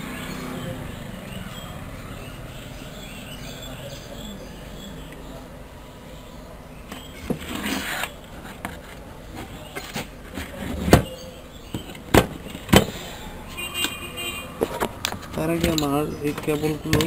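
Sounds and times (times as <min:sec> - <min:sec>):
circuit board and chassis knocks: 0:11.7 - 0:13.0.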